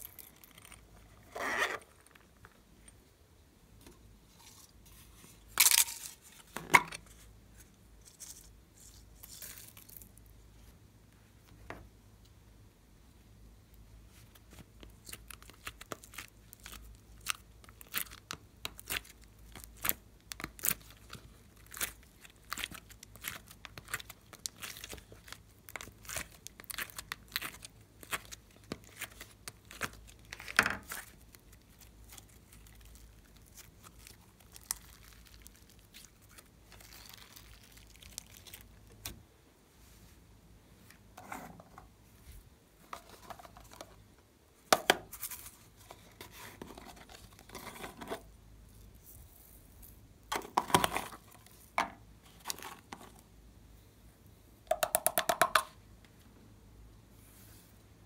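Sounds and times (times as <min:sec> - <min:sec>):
clay crackling and tearing: 0:00.0 - 0:02.6, 0:14.3 - 0:39.2.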